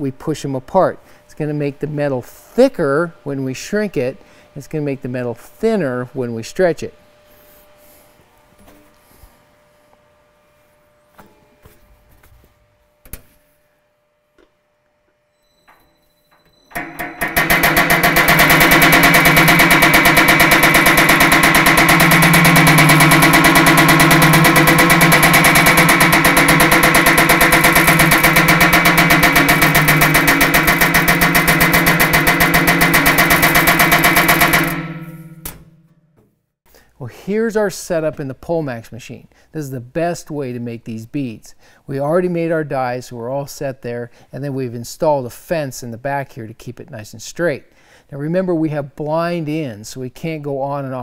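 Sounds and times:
power hammer pounding sheet steel: 16.8 - 36.0.

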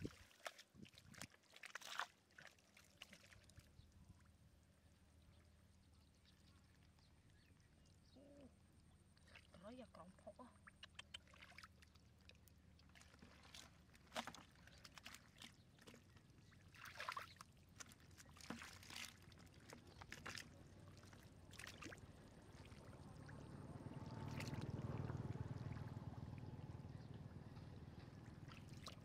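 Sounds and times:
hands splashing in muddy water: 0.0 - 3.6, 10.9 - 12.2, 12.8 - 23.2.

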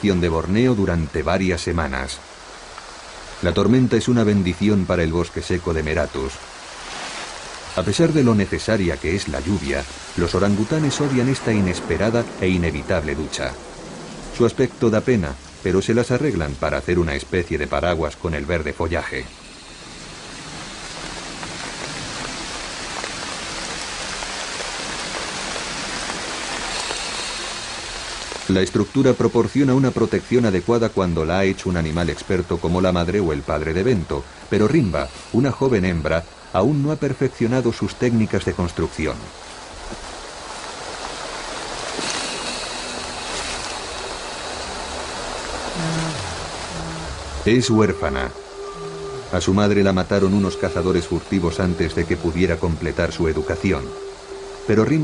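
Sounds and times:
individual raindrop hits: 0.0 - 35.3, 39.0 - 47.5
steady rain falling: 0.0 - 55.0.

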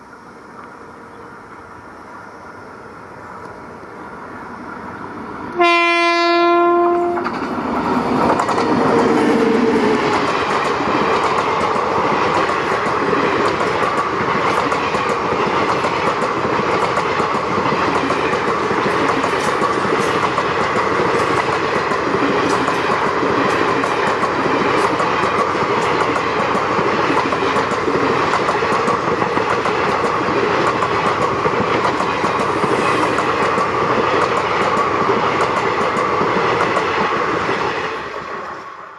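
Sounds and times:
locomotive horn: 5.5 - 7.4.

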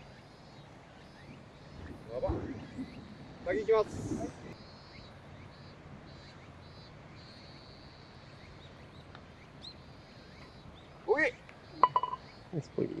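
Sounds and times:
high bird chirps: 4.6 - 12.5.

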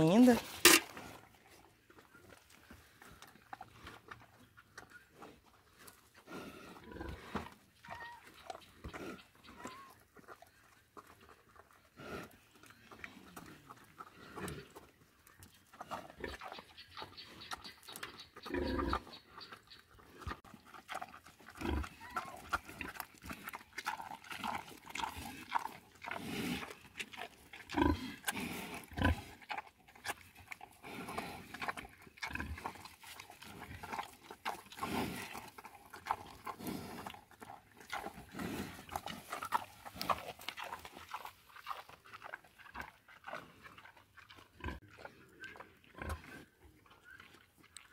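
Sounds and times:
pig crunching and chewing: 0.0 - 47.9
pig snuffling: 0.0 - 47.9.

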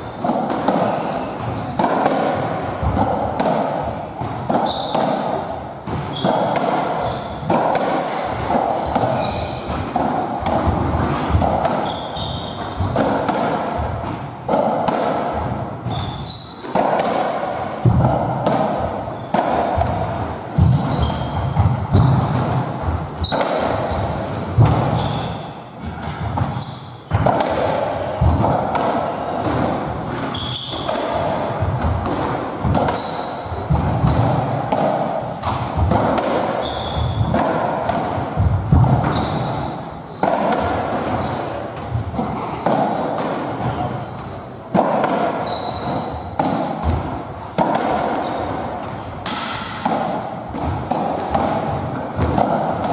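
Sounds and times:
ball hitting walls and floor: 0.0 - 52.9
racket striking ball: 0.0 - 52.9
shoes squeaking on wooden floor: 0.1 - 1.7, 4.6 - 5.0, 6.1 - 7.8, 8.7 - 9.8, 11.8 - 13.3, 15.8 - 16.6, 19.0 - 19.4, 20.6 - 22.2, 26.4 - 27.0, 30.3 - 31.2, 32.8 - 34.2, 36.6 - 37.3, 39.1 - 40.2, 40.8 - 41.6, 45.4 - 46.6, 51.1 - 51.4, 52.6 - 52.9.

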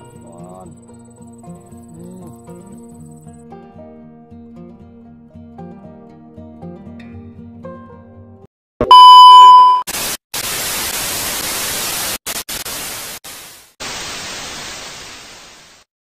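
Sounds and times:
test-tone beep: 8.8 - 9.9
television static hiss: 9.9 - 15.8.

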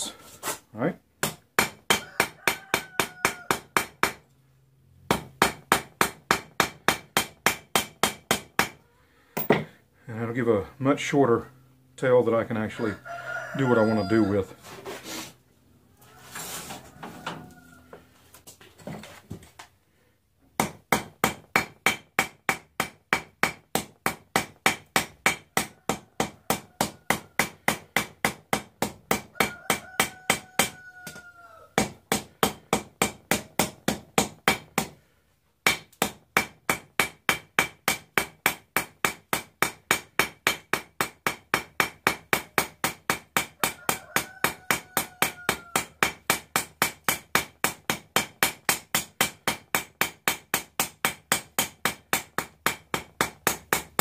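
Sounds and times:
hammer striking steel on anvil: 35.6 - 43.8, 44.5 - 54.0.

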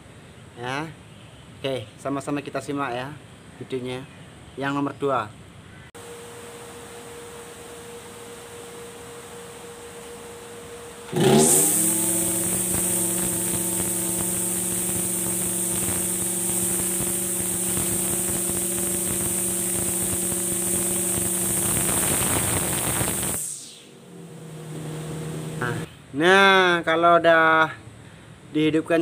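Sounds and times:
brush cutter engine running: 10.9 - 25.9.

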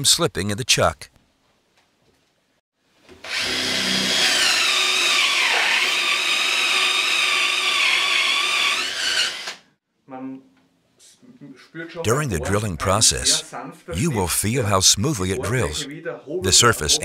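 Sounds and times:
cordless drill boring into wood: 3.2 - 9.7.

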